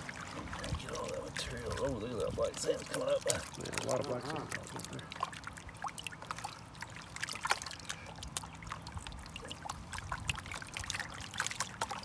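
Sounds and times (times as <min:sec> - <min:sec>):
small water drips: 0:00.0 - 0:12.0
water sloshing in a pan: 0:00.0 - 0:12.0.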